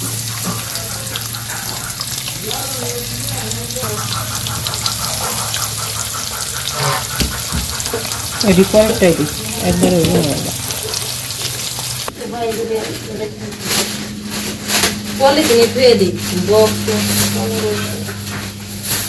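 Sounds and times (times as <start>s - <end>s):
fish sizzling in hot oil: 0.0s - 12.5s
person's voice: 8.4s - 10.6s.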